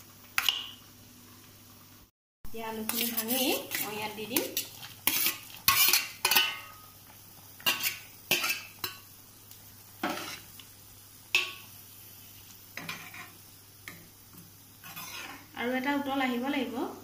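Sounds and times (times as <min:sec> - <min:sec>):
metal ladle scraping a pan: 0:02.8 - 0:06.8, 0:07.6 - 0:09.0, 0:10.0 - 0:10.5, 0:12.8 - 0:13.4, 0:14.8 - 0:15.5.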